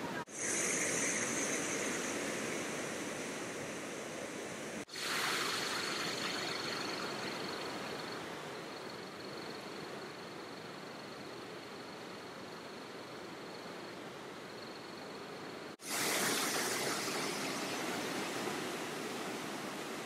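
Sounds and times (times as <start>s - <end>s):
thin high tone: 0.0s - 4.4s
water rushing through rapids: 15.8s - 20.0s.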